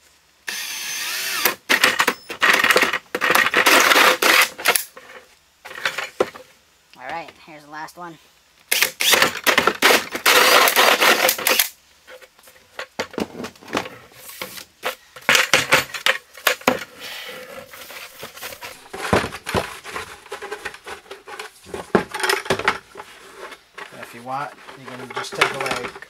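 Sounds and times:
plastic scraping: 13.0s - 26.0s
plastic bucket knocking and rattling: 18.2s - 23.1s, 23.8s - 26.0s.

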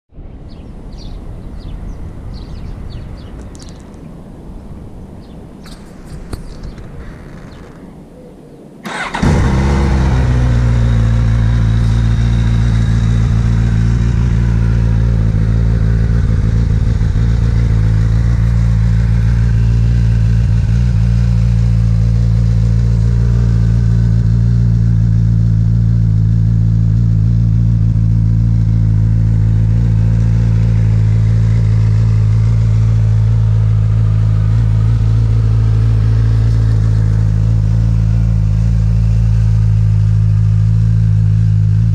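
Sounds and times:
motorcycle engine starting and idling: 8.8s - 41.9s.

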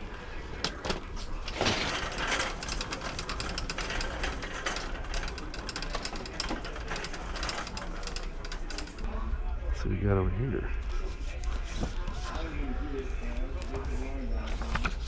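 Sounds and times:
shopping cart rattling: 0.5s - 9.1s.

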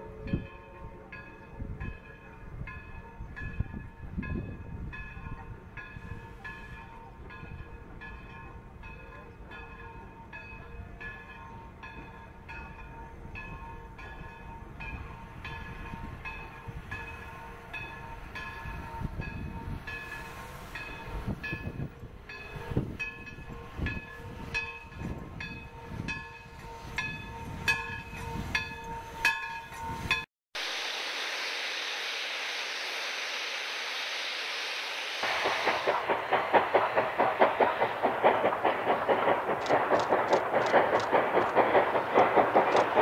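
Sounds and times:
locomotive bell ringing: 0.0s - 30.3s
steady steam hiss: 19.7s - 21.6s, 30.6s - 43.0s
steam exhaust chuffs: 30.6s - 43.0s.

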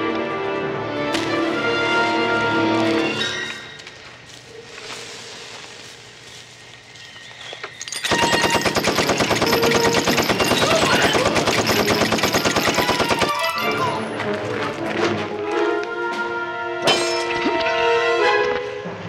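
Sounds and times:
music score: 0.0s - 3.7s, 13.4s - 19.0s
gatling gun firing: 8.1s - 13.7s.

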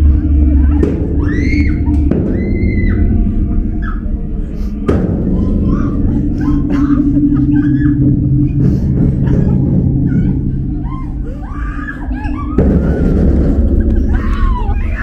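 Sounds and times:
low rumbling drone: 0.0s - 15.0s
high wailing screams: 0.6s - 4.2s, 10.0s - 15.0s.

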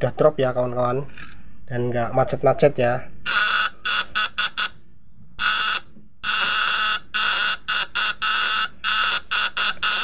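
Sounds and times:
contact breaker buzzing: 3.3s - 4.8s, 5.4s - 10.0s.

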